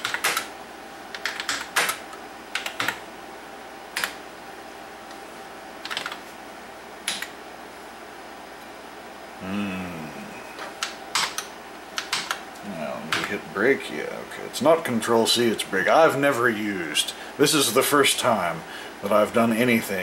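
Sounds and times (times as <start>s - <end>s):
keyboard keys clicking: 0.0s - 0.5s, 1.1s - 3.0s, 5.8s - 6.2s, 7.1s - 7.3s, 10.8s - 12.4s.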